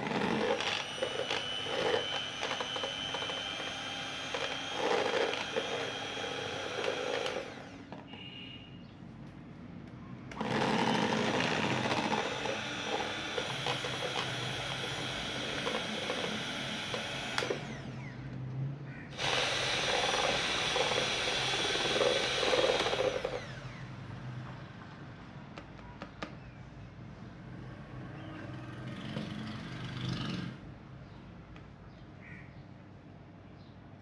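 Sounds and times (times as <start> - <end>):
electric hand mixer whirring: 0.0 - 8.0, 10.3 - 18.4, 19.1 - 23.9.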